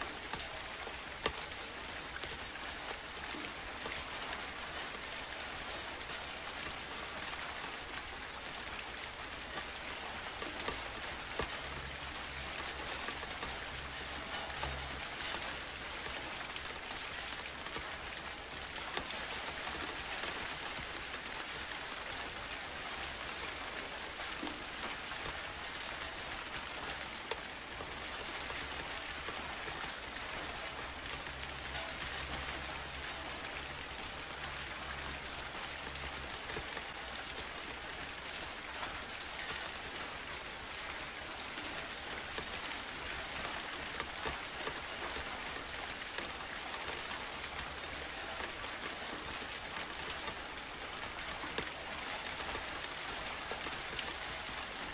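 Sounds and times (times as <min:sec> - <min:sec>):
steady rain falling: 0:00.0 - 0:54.9.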